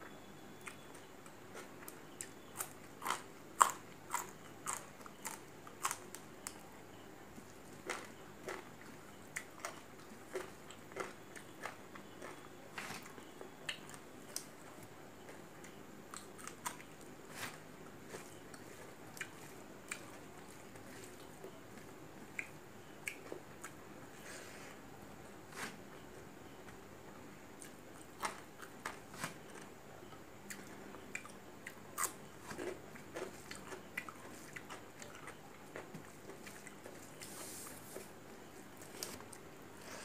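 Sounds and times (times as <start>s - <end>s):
person chewing crunchy food: 1.5s - 6.6s, 7.4s - 14.5s, 16.1s - 23.8s, 30.5s - 38.1s.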